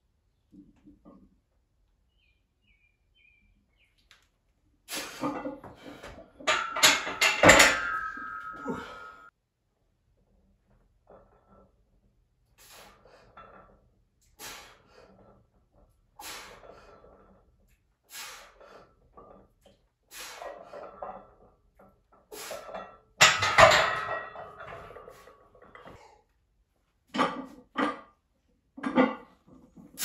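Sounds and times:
barbell clanking on metal uprights: 6.4 - 9.3, 23.2 - 25.2.

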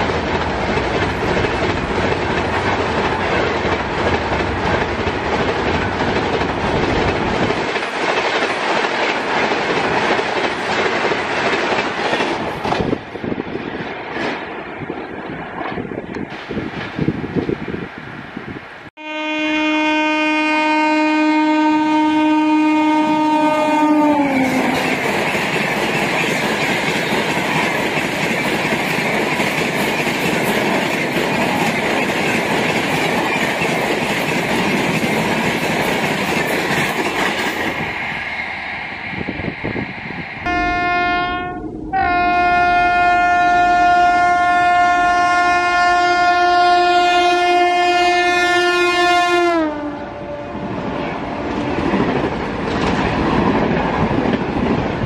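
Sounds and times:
train wheels clattering: 0.0 - 14.6, 24.0 - 39.6
train horn: 19.0 - 25.1, 40.4 - 51.8.

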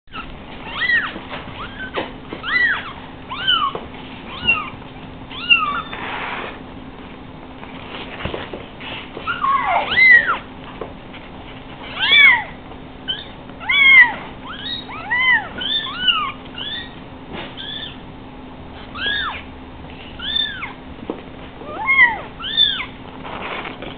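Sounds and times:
kittens mewing: 0.1 - 6.6, 9.2 - 10.5, 11.9 - 17.0, 17.6 - 18.0, 18.8 - 20.8, 21.6 - 23.0.

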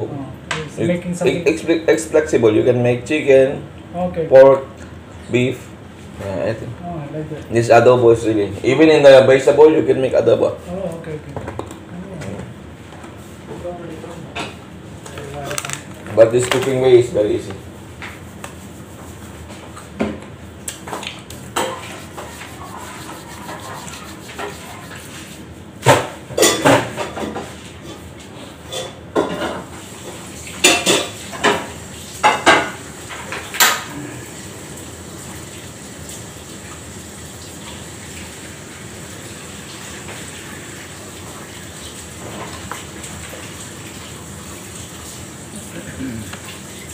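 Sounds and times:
metal dishes and cutlery clinking: 26.3 - 27.3.

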